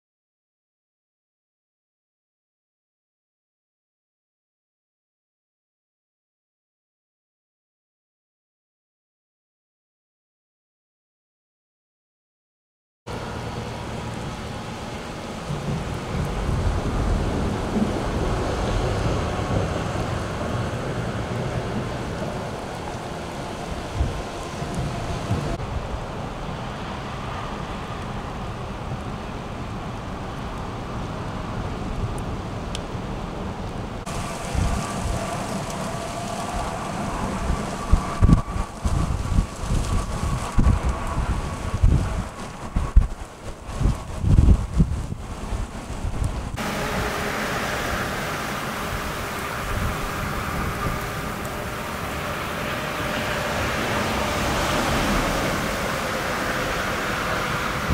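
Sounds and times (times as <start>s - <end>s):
freezing rain hissing: 13.1s - 31.9s, 33.9s - 57.9s
wind buffeting microphone: 13.1s - 57.9s.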